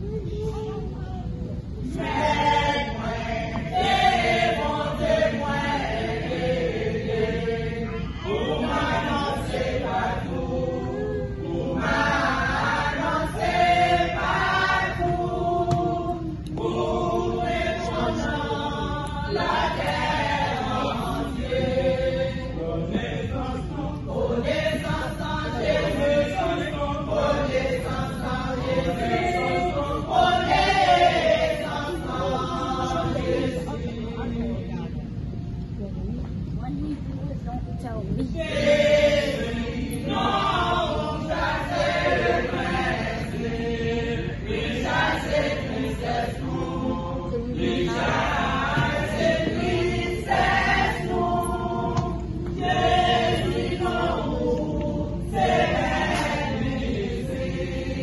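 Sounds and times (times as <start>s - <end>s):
church choir singing: 1.7s - 34.5s, 38.2s - 58.0s.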